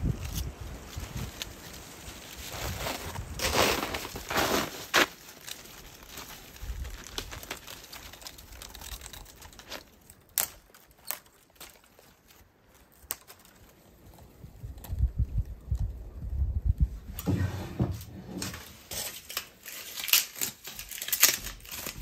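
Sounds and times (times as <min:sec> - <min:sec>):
twigs snapping: 0:00.0 - 0:15.8, 0:18.4 - 0:22.0
bark tearing: 0:00.2 - 0:13.8, 0:18.4 - 0:22.0.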